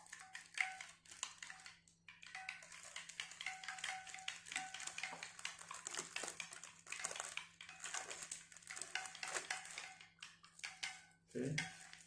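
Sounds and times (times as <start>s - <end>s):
plastic film crinkling: 2.4s - 12.0s.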